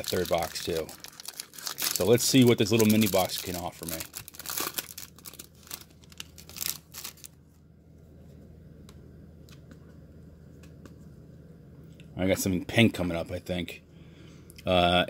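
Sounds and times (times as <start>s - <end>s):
foil wrapper crinkling and tearing: 0.0s - 7.4s
low steady hum: 0.0s - 15.0s.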